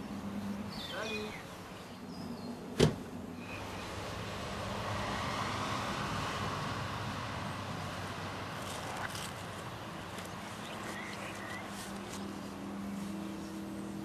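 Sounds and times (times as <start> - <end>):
steady rushing noise: 0.0 - 14.0
car door slamming: 2.8 - 3.1.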